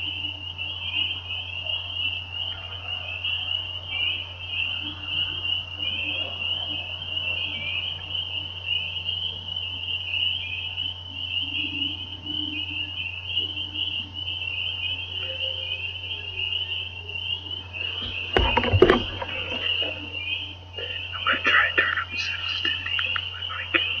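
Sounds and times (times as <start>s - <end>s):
frogs trilling: 0.0s - 24.0s
steady low hum: 0.0s - 24.0s
knocks and rustling: 18.0s - 20.0s.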